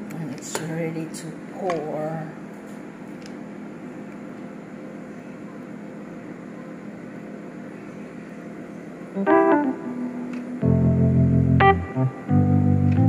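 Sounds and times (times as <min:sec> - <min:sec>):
low steady hum: 0:03.5 - 0:13.0
background keyboard music: 0:09.2 - 0:13.0.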